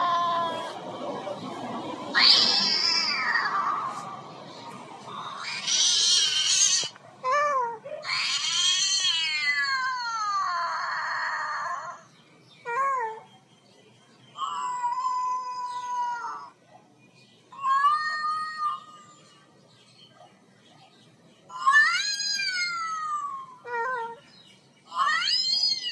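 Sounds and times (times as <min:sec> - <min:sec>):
cat meowing and yowling: 0:02.1 - 0:04.0, 0:05.3 - 0:12.0, 0:14.4 - 0:16.5, 0:17.5 - 0:19.4, 0:21.5 - 0:24.2, 0:24.9 - 0:25.9.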